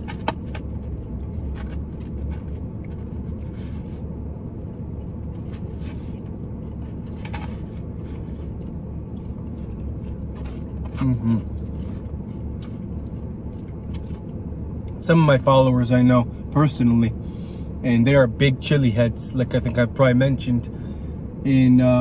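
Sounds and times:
car cabin rumble: 0.0 - 17.2.

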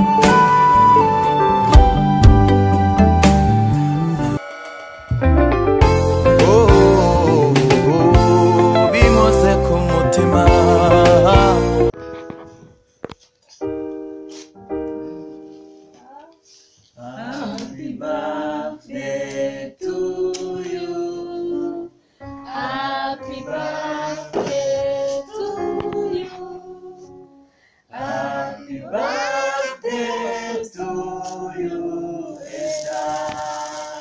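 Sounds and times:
group singing a song: 6.2 - 11.9, 17.0 - 27.1, 27.9 - 34.0
sparkler candle fizzing: 32.3 - 34.0.

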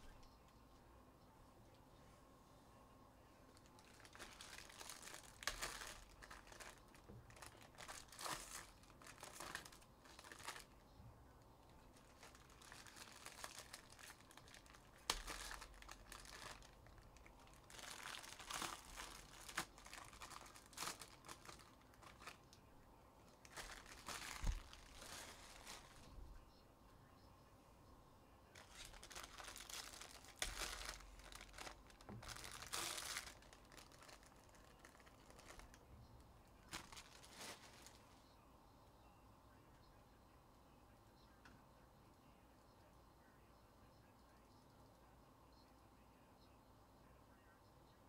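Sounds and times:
card pack wrappers crinkling: 3.5 - 10.8, 11.7 - 22.5, 23.4 - 26.1, 28.6 - 35.8, 36.6 - 38.0.

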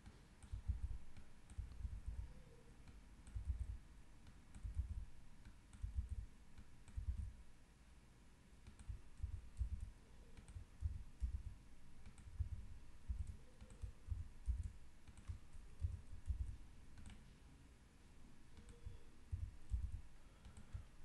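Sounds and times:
mouse clicks: 0.0 - 7.4, 8.6 - 17.3, 18.5 - 20.9.

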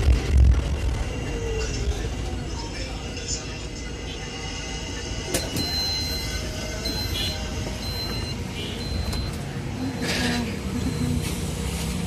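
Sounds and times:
bus door warning beeps: 5.3 - 12.0.

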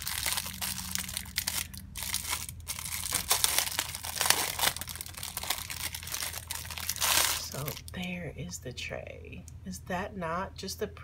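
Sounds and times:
plastic wrap crinkling: 0.0 - 8.0.

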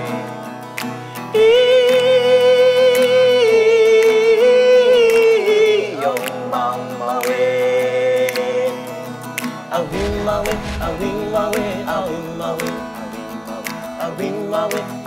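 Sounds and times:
man singing: 1.3 - 8.9.

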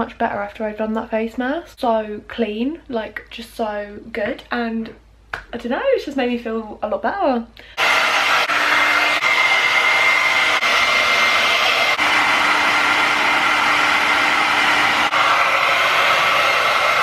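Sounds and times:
hair dryer running: 7.7 - 17.0.

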